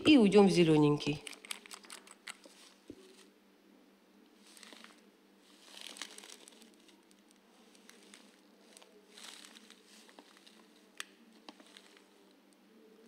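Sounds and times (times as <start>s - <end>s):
gloved hands rustling: 4.4s - 12.2s.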